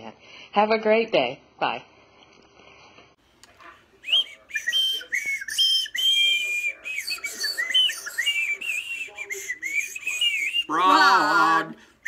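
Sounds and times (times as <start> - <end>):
handheld whistles blown: 4.0 - 11.0.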